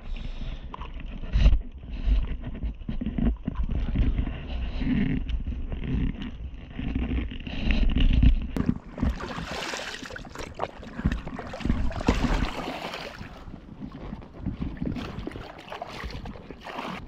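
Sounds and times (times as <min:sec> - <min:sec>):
water splashing and sloshing: 0:08.6 - 0:17.0.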